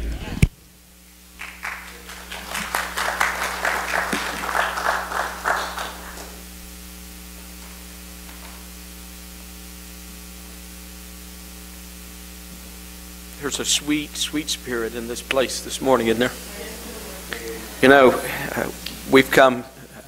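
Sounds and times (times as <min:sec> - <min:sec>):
electrical mains hum: 0:00.0 - 0:20.0
people clapping: 0:01.4 - 0:06.5.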